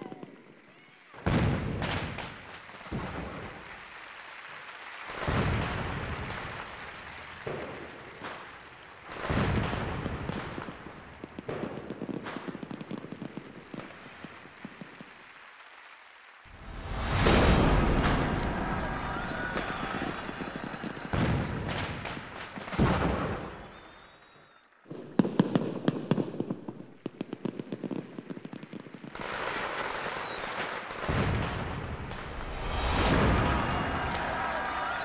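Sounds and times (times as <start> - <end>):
booms with rumbling tails: 16.5 - 22.1, 31.1 - 34.7.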